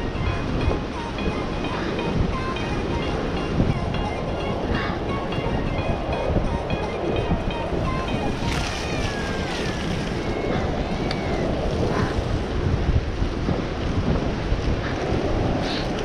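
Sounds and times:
bike rumbling and rattling: 0.0 - 16.0
wind buffeting microphone: 0.0 - 16.0.

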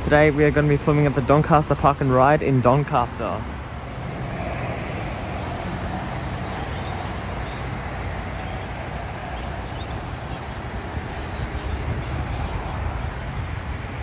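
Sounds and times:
bus engine hum: 0.0 - 11.0
road traffic noise: 0.0 - 14.0.

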